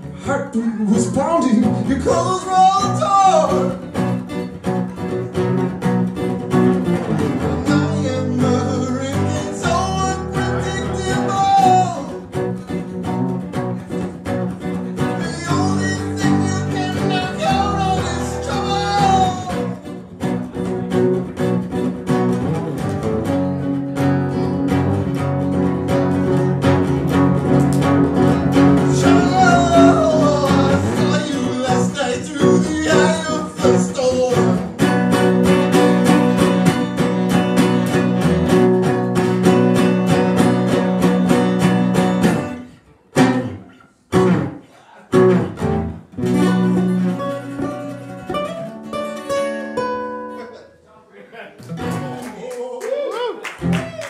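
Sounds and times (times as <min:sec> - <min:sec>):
acoustic guitars strumming: 0:00.0 - 0:50.9
person singing: 0:00.2 - 0:03.9, 0:07.4 - 0:12.3, 0:15.0 - 0:20.0, 0:28.6 - 0:34.9.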